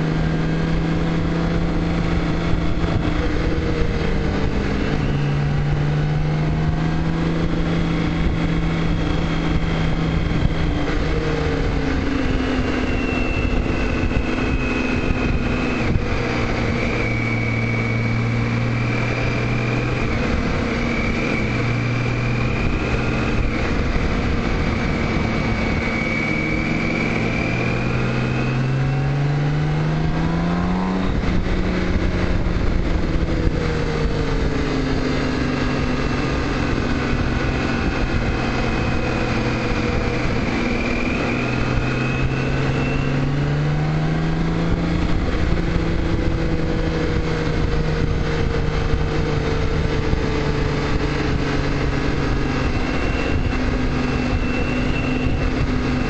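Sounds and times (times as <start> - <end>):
motorcycle engine running: 0.0 - 56.0
wind and road noise: 0.0 - 56.0.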